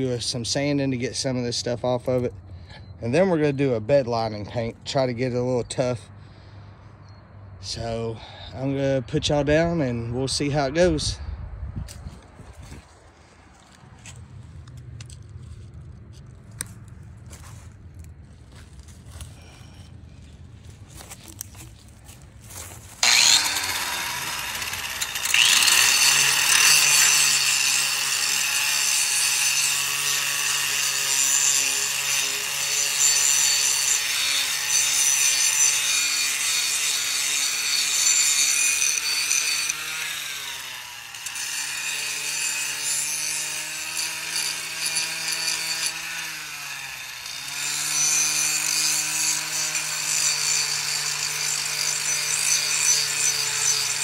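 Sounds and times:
power sander motor humming: 0:23.0 - 0:32.7
sanding on metal: 0:23.0 - 0:40.4, 0:47.6 - 0:54.0.

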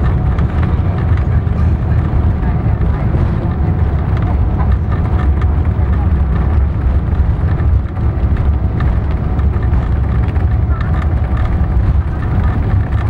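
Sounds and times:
low rumble of engines and wheels: 0:00.0 - 0:13.0.

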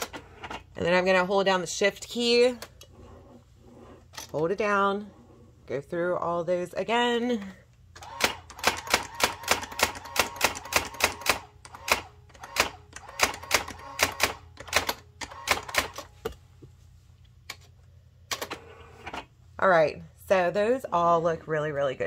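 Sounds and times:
typewriter low hum: 0:08.0 - 0:16.1.

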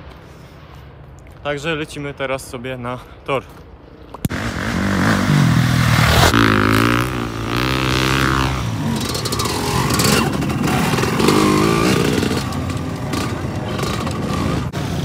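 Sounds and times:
motorcycle engine revving: 0:04.3 - 0:15.0.

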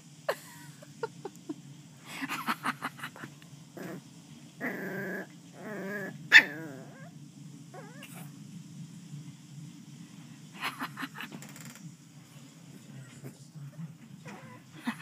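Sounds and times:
puppy growling and whining: 0:03.8 - 0:04.0, 0:04.6 - 0:08.3, 0:14.2 - 0:15.0.

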